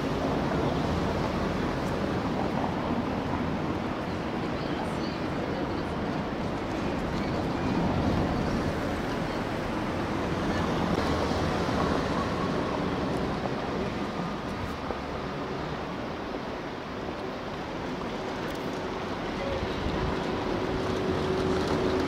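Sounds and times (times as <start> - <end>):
wind buffeting microphone: 18.0 - 22.0.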